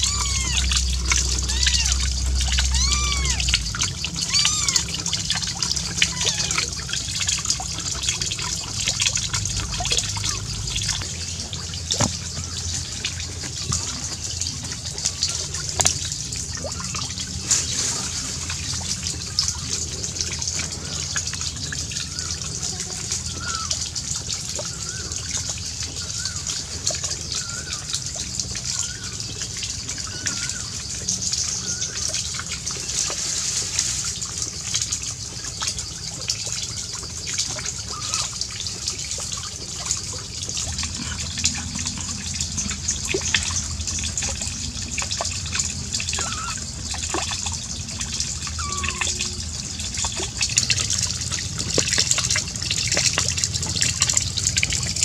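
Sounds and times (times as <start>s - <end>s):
faint high squeaks: 0.0s - 3.6s, 4.2s - 5.0s
running water trickling: 0.0s - 55.0s.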